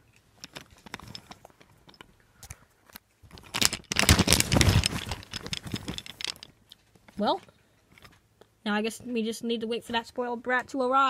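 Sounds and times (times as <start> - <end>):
phone rustling over fabric: 0.3 - 2.6, 3.2 - 8.2
wooden toy trains clicking: 3.3 - 6.6.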